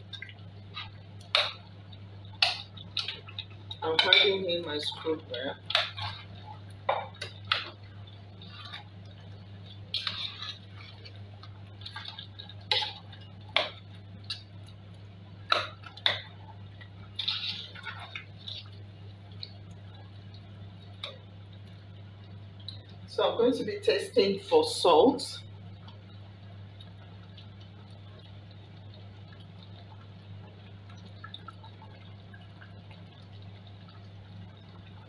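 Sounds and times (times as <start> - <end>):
steady low hum: 0.0 - 35.0
metal spoon scraping a pot: 9.9 - 10.9.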